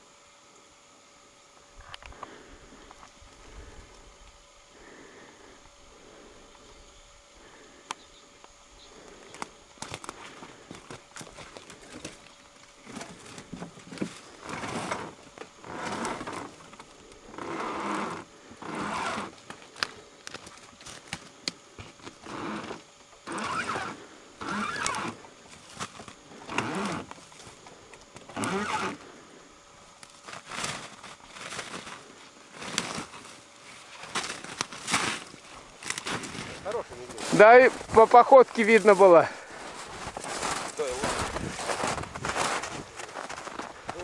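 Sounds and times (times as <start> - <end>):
person breathing hard: 2.0 - 6.8, 7.4 - 8.1, 8.8 - 10.9.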